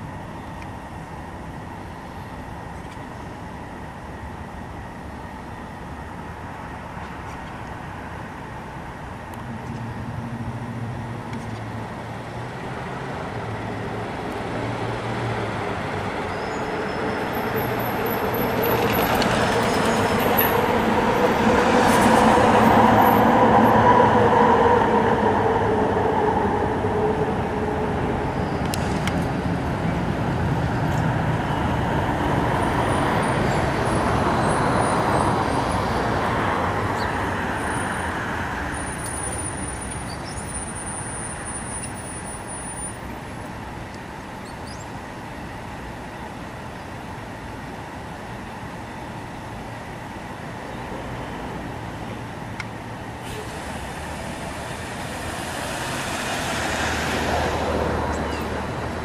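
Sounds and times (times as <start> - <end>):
car driving past: 53.3 - 59.0.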